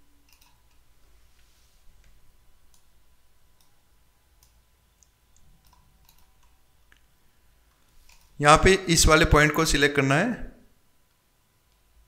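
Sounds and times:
computer mouse clicks: 0.2 - 0.8, 3.5 - 3.8, 4.4 - 7.1.

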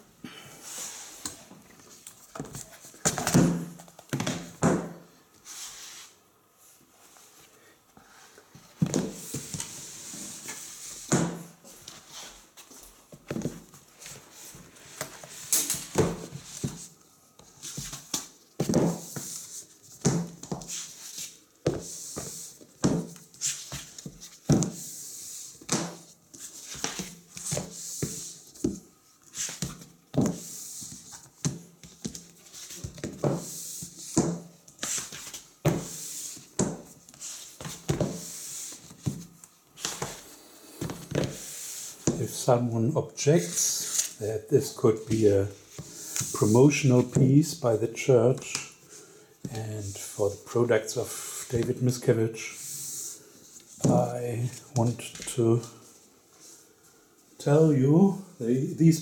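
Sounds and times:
books sliding and rubbing: 0.6 - 1.2, 5.4 - 6.2, 8.5 - 16.9, 17.6 - 42.2
books knocking on table: 2.4 - 5.0, 11.1 - 11.4, 18.6 - 19.1, 20.0 - 20.7.

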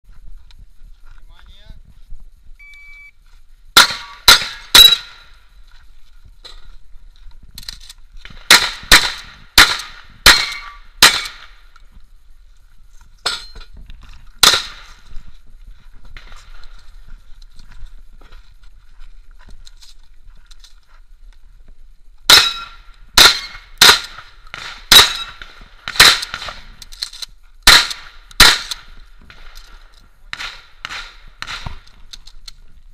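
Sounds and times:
shot timer beep: 2.6 - 3.2
shotgun firing: 3.8 - 5.2, 8.3 - 11.6, 14.4 - 15.0, 22.3 - 26.7, 27.6 - 29.6, 30.3 - 31.8.

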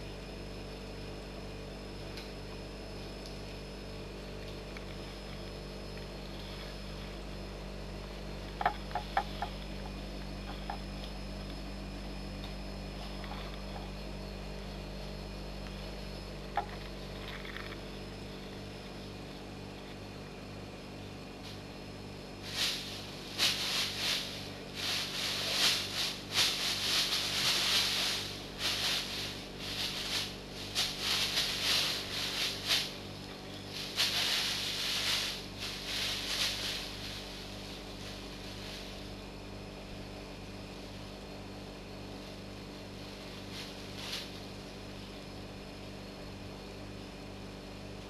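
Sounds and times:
faint steady hum: 0.0 - 48.0
plastic bag rustling and crinkling: 6.1 - 14.5, 22.4 - 39.3, 42.8 - 44.6.

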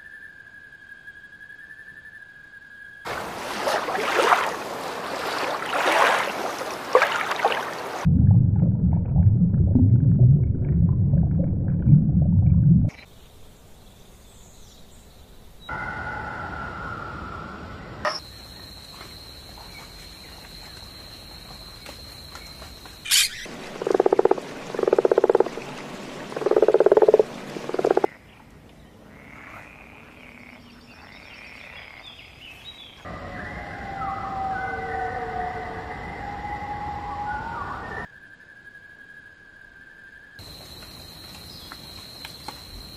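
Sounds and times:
wavering whistled calls: 0.0 - 3.1, 20.2 - 23.5, 33.1 - 40.4
toad croaking: 23.1 - 25.6, 26.4 - 28.2.

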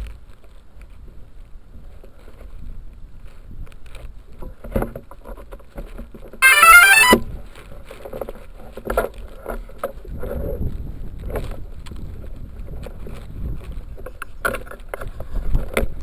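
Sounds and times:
wind rumble on microphone: 0.0 - 6.4, 7.3 - 16.0
electronic beeps: 6.4 - 7.2.

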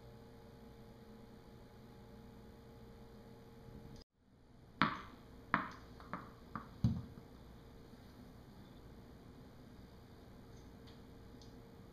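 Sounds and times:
tennis ball bouncing on tile: 4.8 - 7.3.

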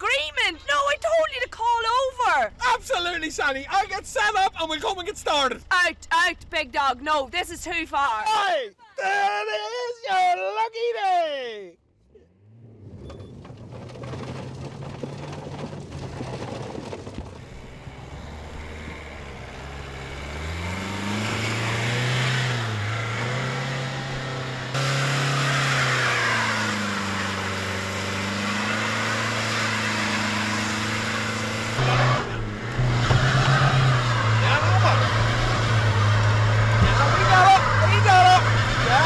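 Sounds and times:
wheels spinning in wet mud: 12.8 - 24.0, 25.0 - 39.0
car engine revving hard: 17.4 - 39.0.

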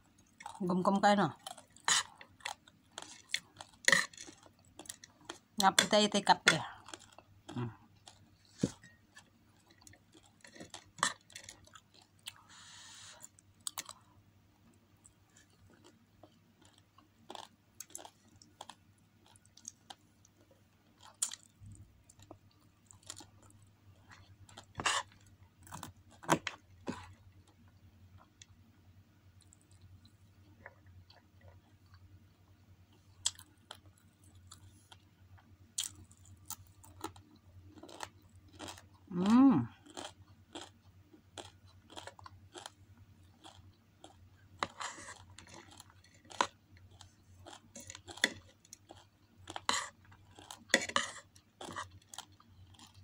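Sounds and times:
chewing and crunching food: 0.0 - 28.5, 29.3 - 53.0
faint low hum: 0.0 - 53.0
person humming: 39.1 - 39.7.

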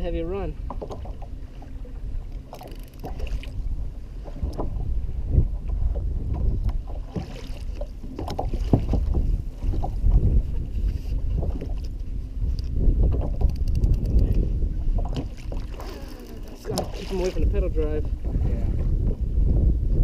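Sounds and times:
water lapping against hull: 0.0 - 20.0
wind buffeting microphone: 0.0 - 20.0
knocks and clicks of fishing gear: 0.6 - 1.3, 2.3 - 3.6, 4.3 - 4.8, 6.3 - 10.3, 11.4 - 17.1.

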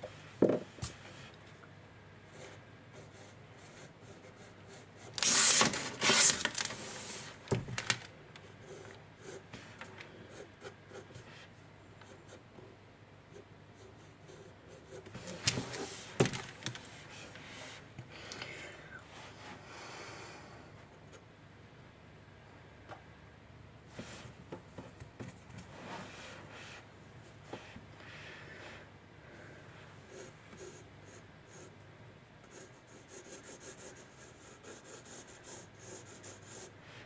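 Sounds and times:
pencil sketching on paper: 2.3 - 5.1, 32.5 - 36.7.

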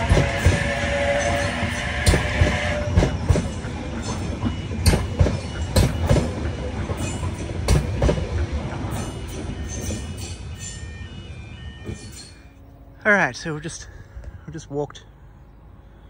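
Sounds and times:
train wheels clacking over rail joints: 0.0 - 10.6
train rumble: 0.0 - 16.0.

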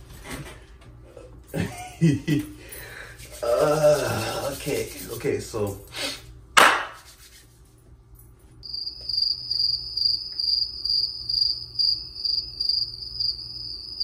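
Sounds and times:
crickets chirping: 8.6 - 14.0.

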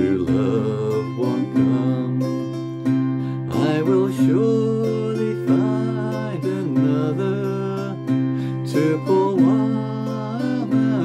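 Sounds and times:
acoustic guitar strummed slowly: 0.0 - 11.0
man singing folk song: 0.0 - 11.0.

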